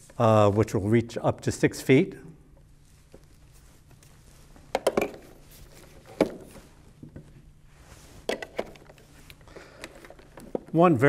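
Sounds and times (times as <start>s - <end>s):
plastic vacuum parts knocking: 4.7s - 5.4s.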